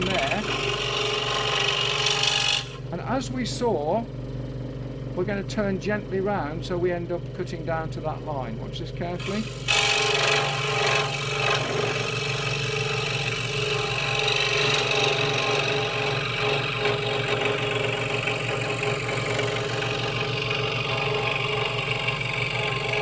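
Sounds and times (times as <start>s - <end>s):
scroll saw cutting wood: 0.0s - 2.8s, 9.1s - 23.0s.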